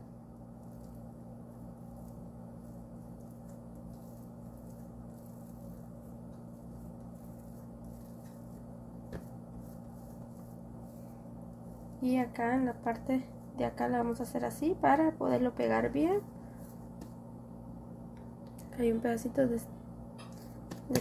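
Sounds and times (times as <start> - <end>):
low electrical hum: 0.0 - 21.0
hands rolling dough on board: 0.7 - 12.1.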